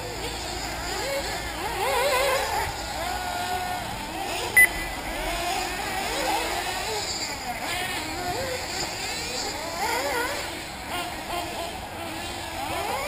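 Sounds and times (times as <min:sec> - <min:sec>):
small glow engines whining: 0:00.0 - 0:13.0
short loud beep: 0:04.6 - 0:05.1.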